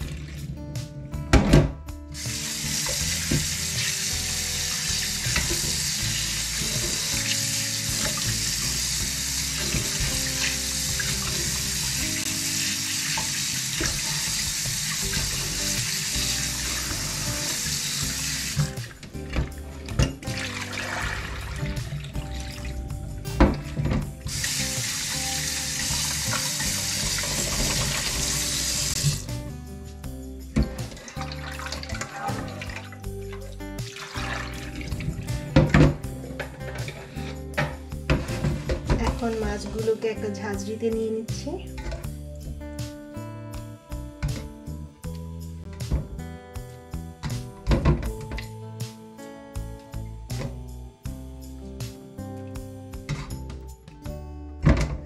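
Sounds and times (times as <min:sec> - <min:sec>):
tap running into sink: 0:01.3 - 0:22.7, 0:23.4 - 0:29.3, 0:33.9 - 0:39.4, 0:54.6 - 0:55.0.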